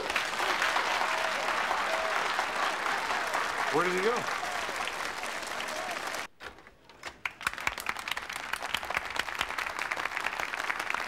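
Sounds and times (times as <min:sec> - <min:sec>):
large audience applauding: 0:00.0 - 0:06.3, 0:07.2 - 0:11.0.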